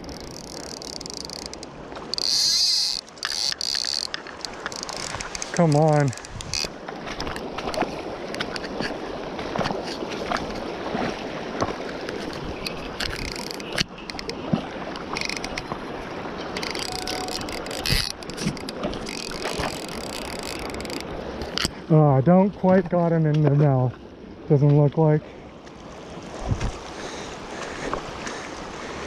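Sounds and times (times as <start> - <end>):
fishing rod knocks and rustles: 0.0 - 15.8, 16.4 - 21.8
river water rushing: 0.0 - 21.9, 23.7 - 29.0.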